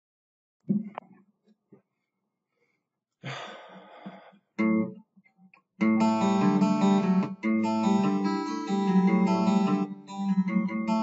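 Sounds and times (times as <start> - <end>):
acoustic guitar strumming: 5.8 - 11.0.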